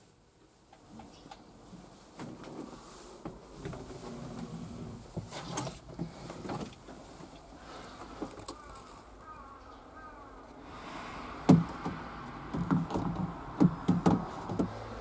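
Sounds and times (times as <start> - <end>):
clicks knocks and rustling: 11.5 - 14.9.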